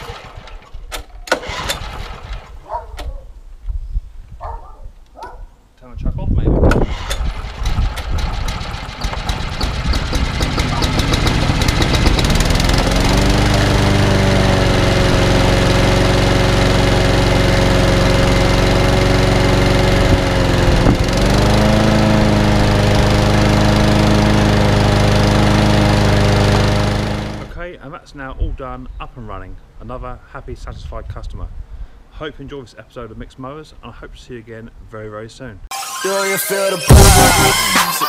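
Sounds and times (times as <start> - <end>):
lawnmower engine running: 0.0 - 2.9, 6.7 - 27.6.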